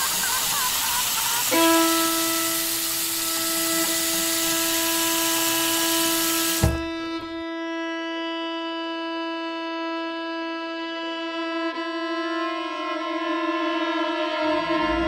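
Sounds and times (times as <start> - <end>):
loud hiss: 0.0 - 7.3
held musical note: 1.5 - 7.6, 12.5 - 15.0.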